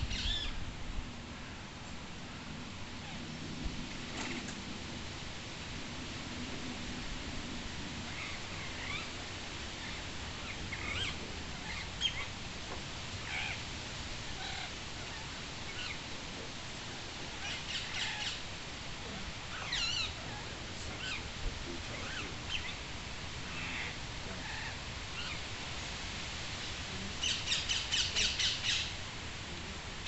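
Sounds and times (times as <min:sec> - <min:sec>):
parakeets chirping and squawking: 0:09.8 - 0:12.3.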